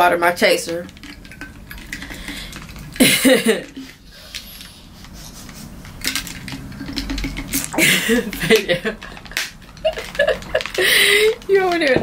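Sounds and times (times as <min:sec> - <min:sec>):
person drinking from bottle: 0:03.8 - 0:08.0.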